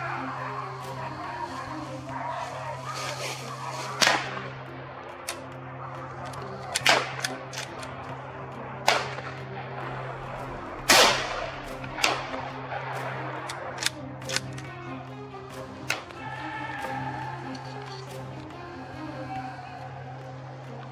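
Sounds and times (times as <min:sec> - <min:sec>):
gunshot echo: 0:10.8 - 0:13.1
rifle shots: 0:10.8 - 0:14.6.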